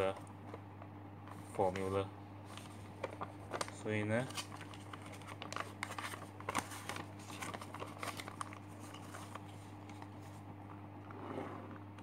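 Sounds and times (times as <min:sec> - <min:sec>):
paper rustling: 0:01.3 - 0:10.4.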